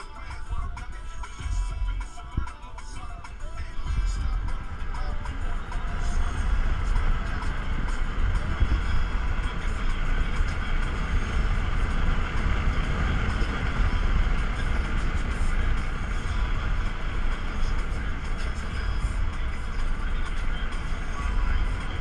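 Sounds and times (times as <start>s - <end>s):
wind rushing inside moving car: 0.0s - 22.0s.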